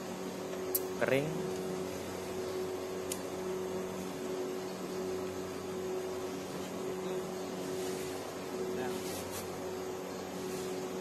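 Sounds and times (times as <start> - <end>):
machine hum: 0.0 - 11.0
faint hiss: 7.5 - 11.0.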